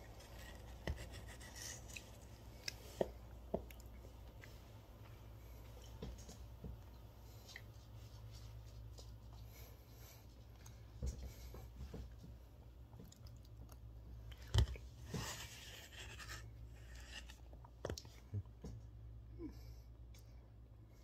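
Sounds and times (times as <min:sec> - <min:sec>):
low steady hum: 0:00.0 - 0:21.0
chewing: 0:12.9 - 0:14.8.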